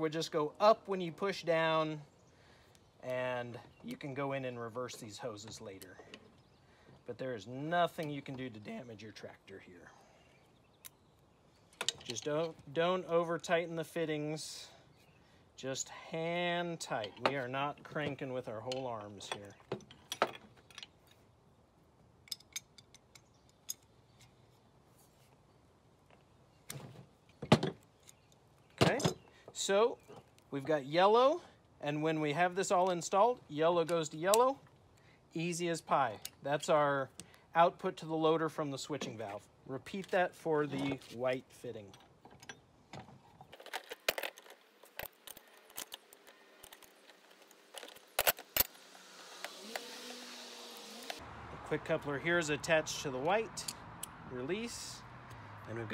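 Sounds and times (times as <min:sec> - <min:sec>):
metal wrenches clinking on fittings: 0:11.8 - 0:12.6, 0:28.8 - 0:29.2.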